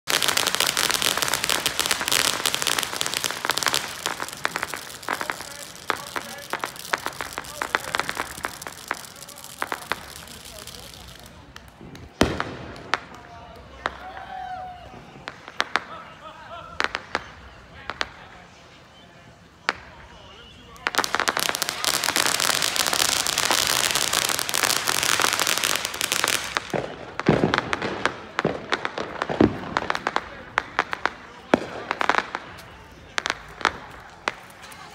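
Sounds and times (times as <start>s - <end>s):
ground firework crackling: 0.0s - 34.9s.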